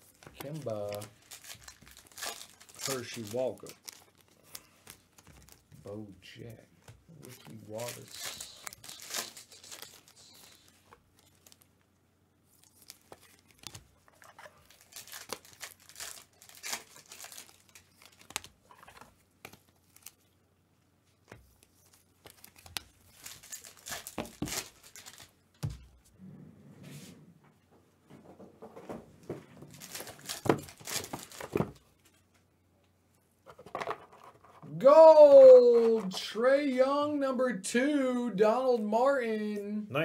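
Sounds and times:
foil wrapper crinkling and tearing: 0.0s - 5.8s, 7.1s - 11.7s, 12.5s - 20.3s, 21.5s - 25.4s, 29.7s - 31.8s
cards being shuffled: 0.0s - 11.7s, 12.5s - 20.3s, 21.2s - 26.0s, 28.8s - 32.3s.

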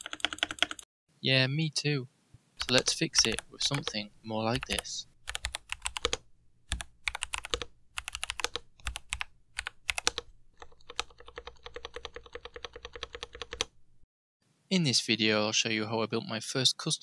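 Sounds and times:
keyboard keystrokes: 0.0s - 0.8s, 2.6s - 13.7s.

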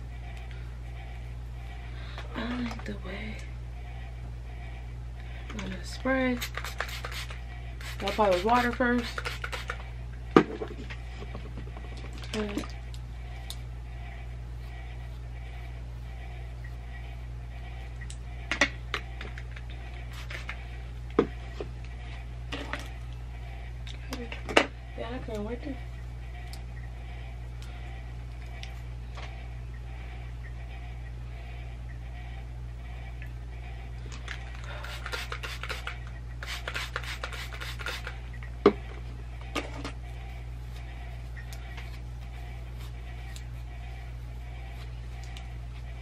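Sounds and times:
steady low hum: 0.0s - 46.0s
hair rubbing and rasping: 5.7s - 9.8s, 19.8s - 20.8s, 34.7s - 38.2s.

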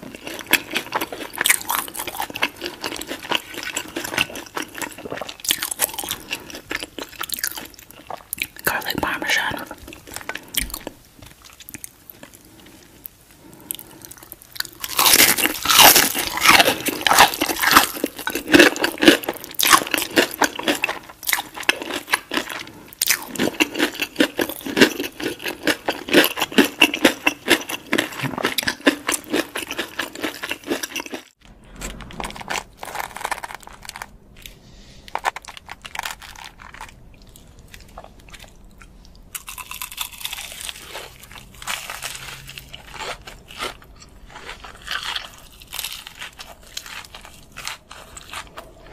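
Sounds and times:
crunching and chewing food: 0.0s - 48.9s.

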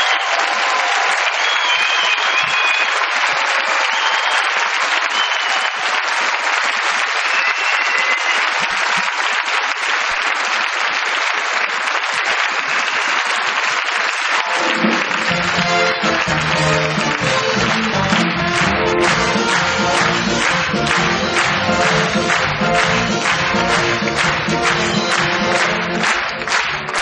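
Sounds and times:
audience applauding: 0.0s - 27.0s
band music: 14.4s - 27.0s.

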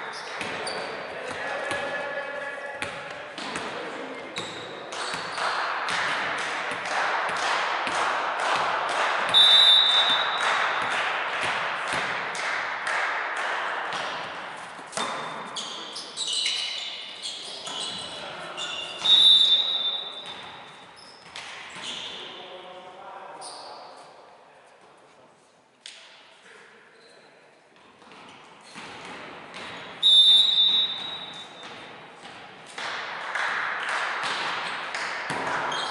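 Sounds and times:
sneakers squeaking on court: 0.0s - 1.8s, 2.6s - 5.6s, 14.8s - 22.3s, 27.0s - 32.5s, 35.3s - 35.9s
rhythmic clapping: 4.8s - 9.4s, 10.0s - 14.5s, 32.7s - 35.9s
referee's whistle: 9.3s - 10.4s, 18.6s - 20.2s, 30.0s - 31.5s.

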